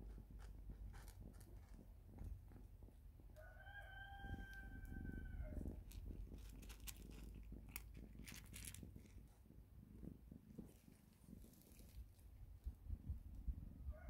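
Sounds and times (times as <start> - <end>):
cat crunching dry kibble: 0.0 - 2.9, 4.3 - 9.5, 10.5 - 12.7.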